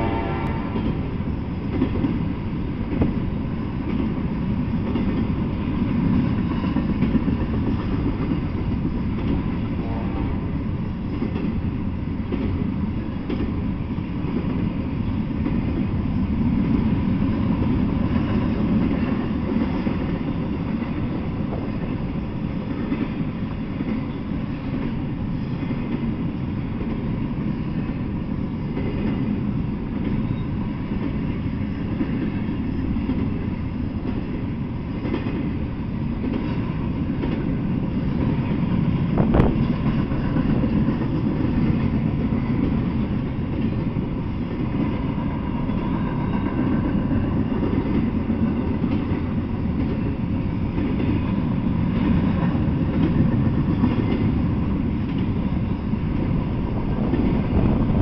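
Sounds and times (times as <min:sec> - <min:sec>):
freight train rumbling: 0:00.0 - 0:58.0.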